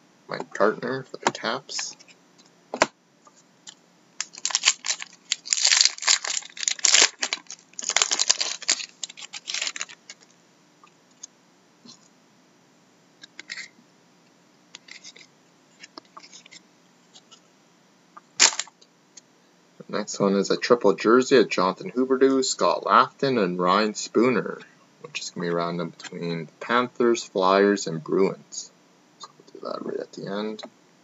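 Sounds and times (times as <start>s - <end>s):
cards clicking and rustling: 4.2s - 10.3s, 18.4s - 18.7s
wrapper tearing and crinkling: 4.2s - 10.3s, 18.4s - 18.7s.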